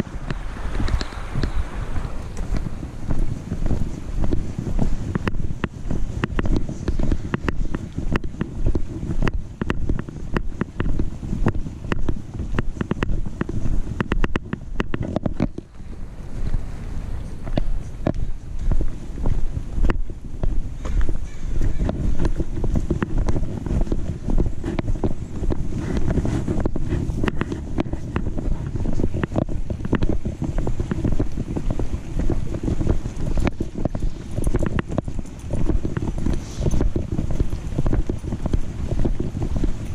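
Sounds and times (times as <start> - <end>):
camera handling rumble: 0.0 - 4.4, 5.1 - 15.8, 20.8 - 39.9
footsteps: 0.0 - 39.9
wind on microphone: 0.0 - 39.9
sharp clicks and knocks: 5.2 - 15.7.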